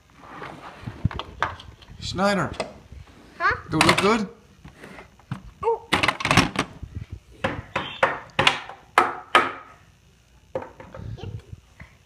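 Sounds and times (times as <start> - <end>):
small hammer knocking on wood: 7.4 - 9.7.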